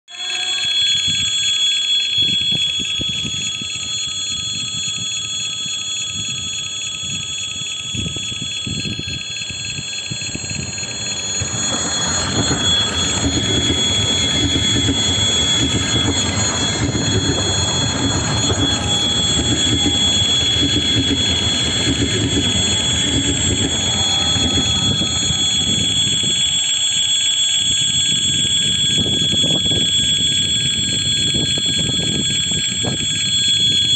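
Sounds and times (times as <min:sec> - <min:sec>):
high-pitched ringing tone: 0:00.1 - 0:33.9
rhythmic wheel clatter: 0:06.1 - 0:26.5
electric train passing: 0:08.2 - 0:26.6.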